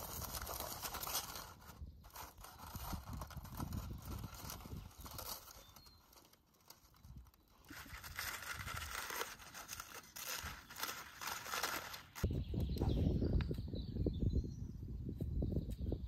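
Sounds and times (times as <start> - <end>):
aluminium foil crinkling: 0.0 - 12.3.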